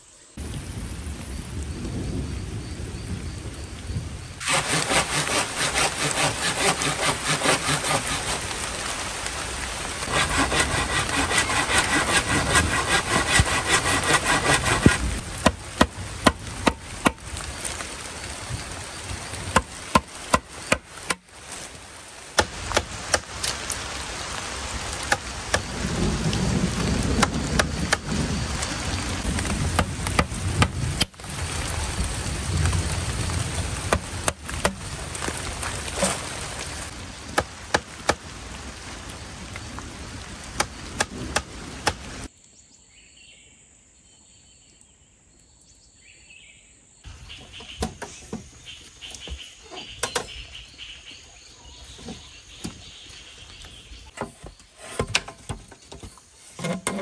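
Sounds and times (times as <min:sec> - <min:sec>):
steady rain hissing: 0:00.0 - 0:42.4, 0:44.8 - 0:56.7
saw cutting bamboo: 0:04.4 - 0:09.0, 0:10.0 - 0:17.2, 0:19.5 - 0:21.7.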